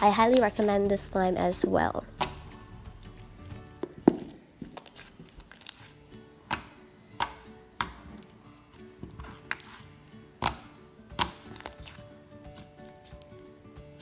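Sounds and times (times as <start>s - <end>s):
soft background music: 0.0s - 14.0s.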